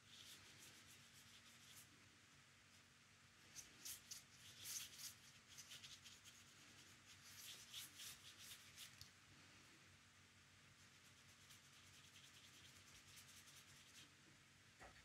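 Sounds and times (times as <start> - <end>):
paintbrush brushing on paper: 0.0 - 2.0, 3.4 - 9.0, 10.7 - 14.2.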